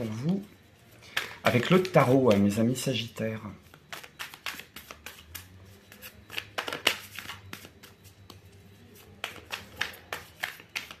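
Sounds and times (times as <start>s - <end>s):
cards being shuffled: 3.7s - 11.0s.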